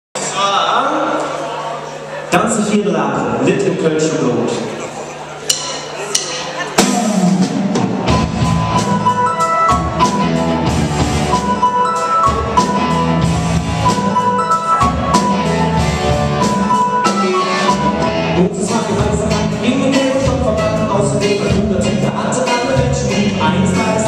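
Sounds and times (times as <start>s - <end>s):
keyboard: 1.8s - 24.0s
drum kit: 5.4s - 24.0s
electric guitars: 6.5s - 24.0s
high melody line: 6.8s - 24.0s
person singing: 16.4s - 24.0s.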